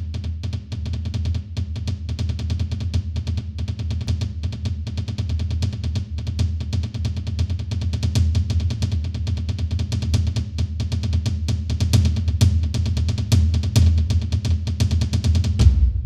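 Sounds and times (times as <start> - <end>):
rapid drum hits: 11.0 - 16.0
deep low end: 15.6 - 16.0.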